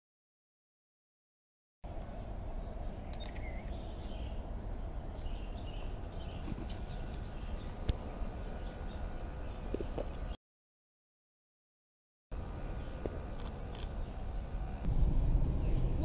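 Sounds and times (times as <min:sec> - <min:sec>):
steady low rumble: 0:01.9 - 0:10.4, 0:12.4 - 0:16.0
small birds chirping: 0:02.0 - 0:10.4, 0:12.6 - 0:16.0.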